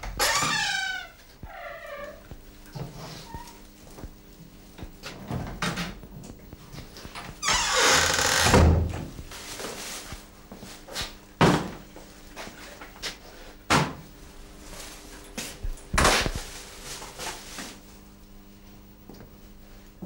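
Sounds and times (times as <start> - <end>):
faint steady hum: 0.0 - 20.0
kitchen knocks and thuds: 11.4 - 11.8, 13.7 - 14.0.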